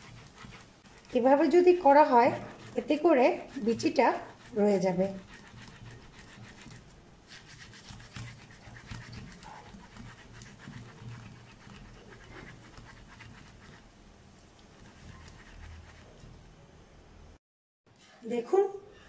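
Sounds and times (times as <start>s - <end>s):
fruit rasping against mesh strainer: 0.0s - 13.6s.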